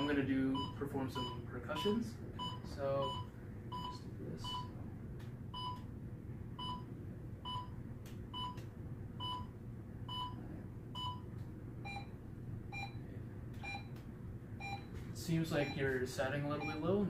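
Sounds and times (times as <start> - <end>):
pulse oximeter beeping: 8.4 - 8.6, 11.8 - 12.1, 13.6 - 14.0, 14.6 - 15.0.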